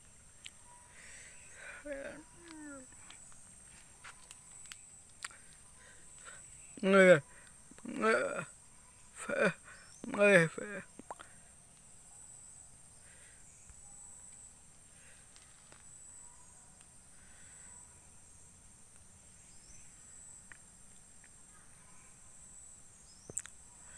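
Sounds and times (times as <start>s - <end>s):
soft chirps: 0.0s - 8.0s.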